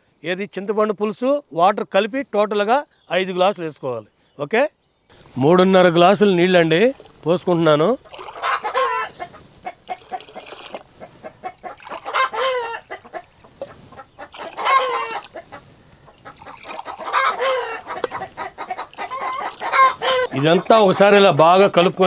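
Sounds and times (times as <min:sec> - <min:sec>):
chickens clucking: 0:05.6 - 0:22.0
drawn-out chicken calls: 0:08.0 - 0:21.4.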